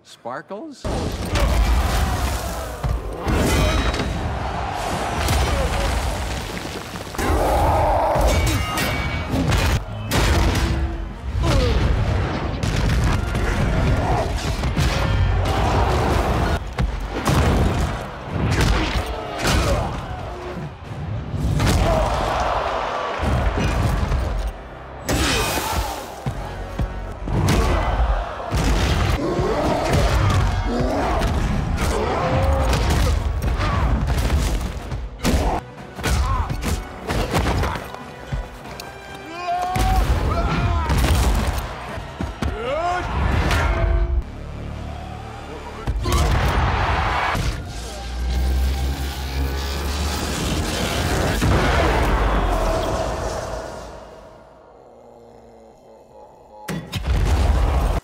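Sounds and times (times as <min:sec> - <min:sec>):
dramatic music score: 0:01.1 - 0:58.0.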